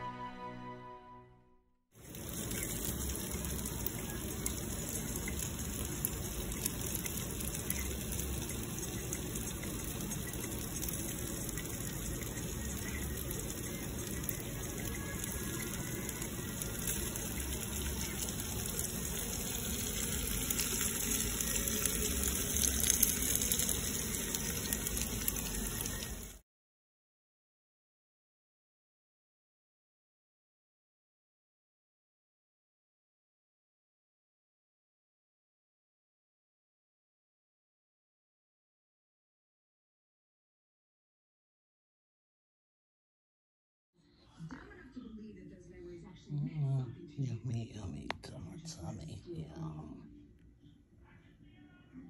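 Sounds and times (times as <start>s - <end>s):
meat sizzling on grill: 2.0s - 26.4s.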